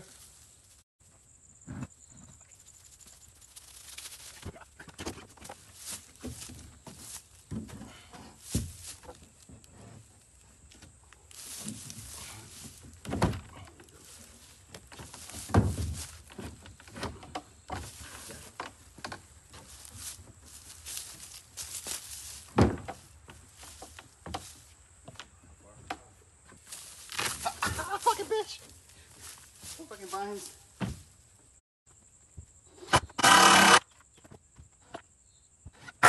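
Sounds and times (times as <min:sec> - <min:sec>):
footsteps on wooden boards: 0:04.4 - 0:31.2
wooden panels knocking and thudding: 0:12.7 - 0:13.6, 0:14.8 - 0:19.6, 0:22.5 - 0:24.5, 0:30.8 - 0:31.1.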